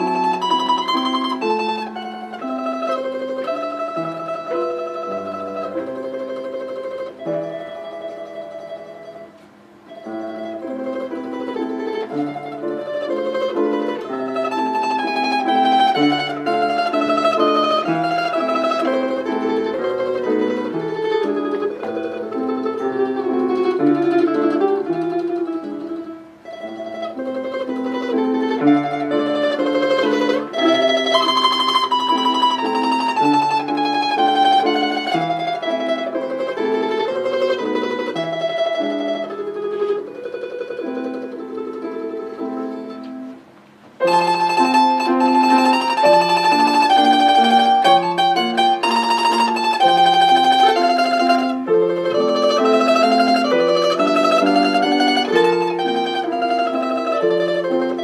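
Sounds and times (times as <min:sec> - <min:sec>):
domra tremolo melody: 0:00.0 - 0:43.0, 0:44.0 - 0:58.0
piano accompaniment: 0:00.0 - 0:58.0.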